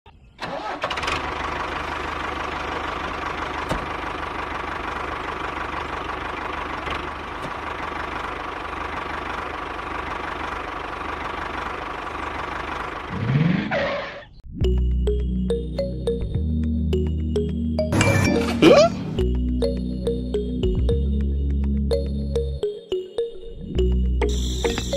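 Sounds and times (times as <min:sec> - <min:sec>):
mini tractor engine drone: 0:00.4 - 0:14.2.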